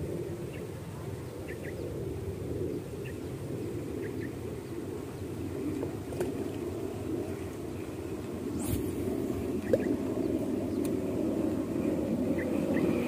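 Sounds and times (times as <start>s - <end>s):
steady low rumble: 0.0s - 13.0s
small birds chirping: 0.5s - 1.9s, 2.6s - 5.3s, 7.3s - 11.1s.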